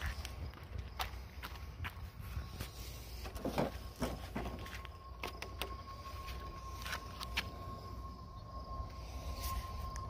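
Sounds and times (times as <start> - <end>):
electric lawn mower whine: 2.4 - 10.0.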